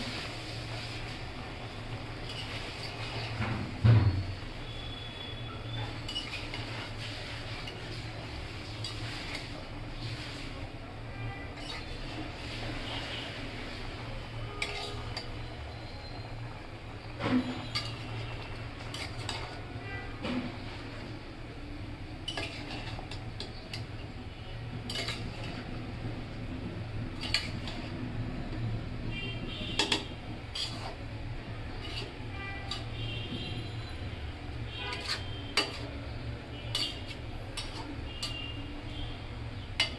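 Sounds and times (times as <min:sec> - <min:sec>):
spatula scraping a metal pan: 0:02.2 - 0:03.5, 0:04.2 - 0:10.6, 0:11.3 - 0:15.5, 0:17.2 - 0:21.0, 0:22.2 - 0:26.2, 0:27.0 - 0:28.0, 0:29.6 - 0:39.9.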